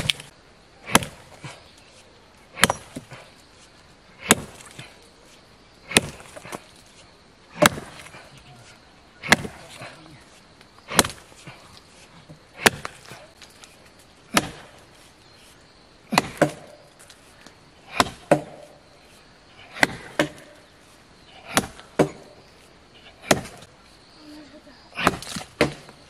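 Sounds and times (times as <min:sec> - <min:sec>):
axe chopping tree trunk: 0:00.0 - 0:01.6, 0:02.6 - 0:03.2, 0:04.2 - 0:04.9, 0:05.9 - 0:06.7, 0:07.6 - 0:08.2, 0:09.2 - 0:10.0, 0:10.9 - 0:11.5, 0:12.3 - 0:13.3, 0:14.3 - 0:14.8, 0:16.1 - 0:16.8, 0:17.9 - 0:18.8, 0:19.7 - 0:20.6, 0:21.5 - 0:22.4, 0:23.2 - 0:23.7, 0:25.0 - 0:26.0.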